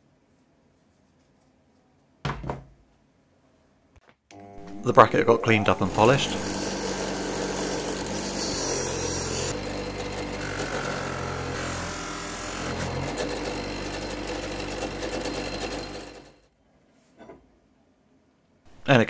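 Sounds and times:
bench polisher motor running: 4.3s - 16.4s.

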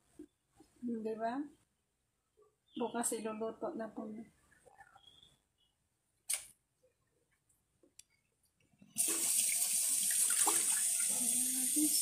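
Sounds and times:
tap water running into sink: 9.0s - 12.0s.

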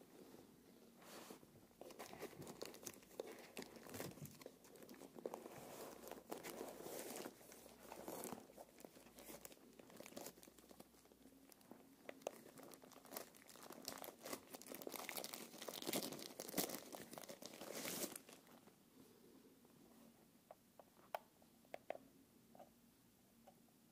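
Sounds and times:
plastic wrapping crinkling: 1.8s - 18.6s.

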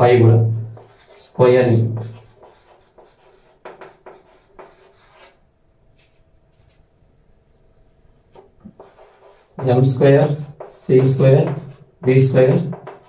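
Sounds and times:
pen strokes on a board: 0.4s - 5.4s, 8.3s - 13.0s.

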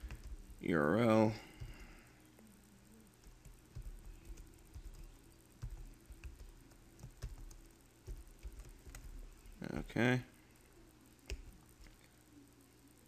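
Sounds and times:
computer keyboard typing: 0.0s - 0.6s, 3.2s - 9.3s.

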